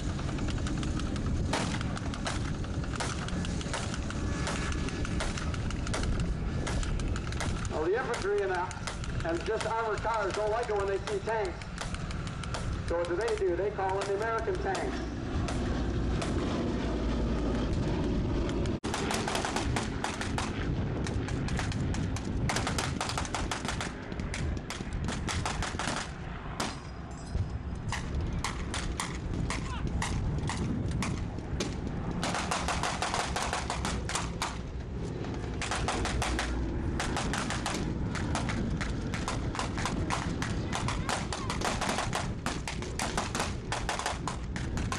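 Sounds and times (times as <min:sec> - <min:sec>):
machine-gun fire bursts: 0:00.0 - 0:16.4, 0:18.8 - 0:20.6, 0:21.4 - 0:24.3, 0:25.1 - 0:26.8, 0:32.2 - 0:34.6, 0:35.6 - 0:44.9
rapid gunfire of blanks: 0:00.0 - 0:16.4, 0:18.8 - 0:26.8, 0:27.9 - 0:34.6, 0:35.5 - 0:44.9
propeller plane engines droning overhead: 0:00.0 - 0:44.9.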